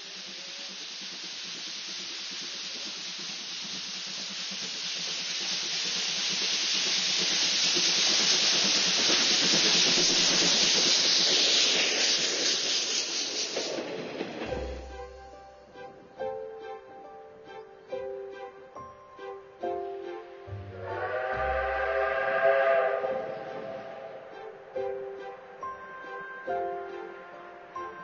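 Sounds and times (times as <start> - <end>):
loud steam hiss: 0.0 - 28.0.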